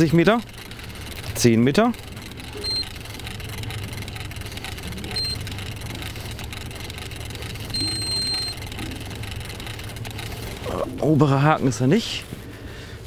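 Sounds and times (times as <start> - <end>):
steady low hum: 0.0 - 13.0
electronic beeps: 2.6 - 3.0, 5.1 - 5.5, 7.7 - 8.6.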